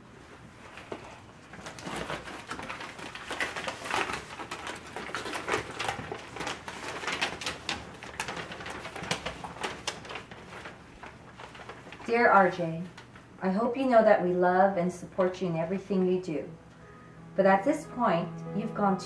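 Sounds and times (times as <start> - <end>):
paper rustling and crinkling: 0.6 - 13.3.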